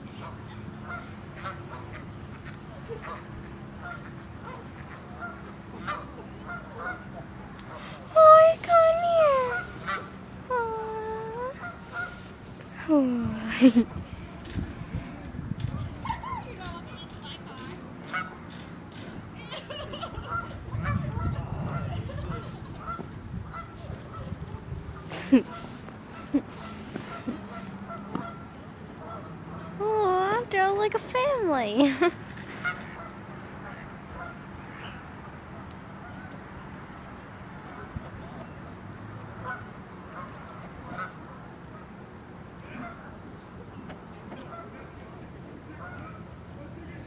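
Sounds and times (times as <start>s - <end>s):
ducks quacking: 0.2s - 7.2s, 11.6s - 12.2s, 19.9s - 24.4s, 25.0s - 29.8s.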